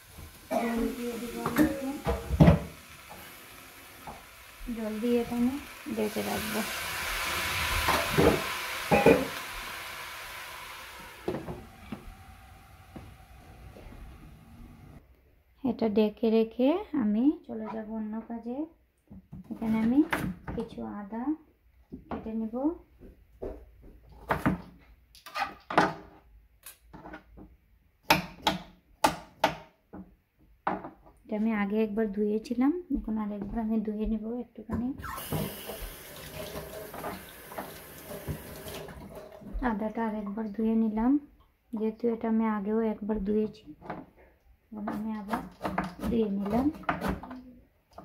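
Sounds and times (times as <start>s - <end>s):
food sizzling in a pot: 0.0s - 15.0s, 35.0s - 39.8s
glass lid knocking on pot: 8.9s - 9.4s.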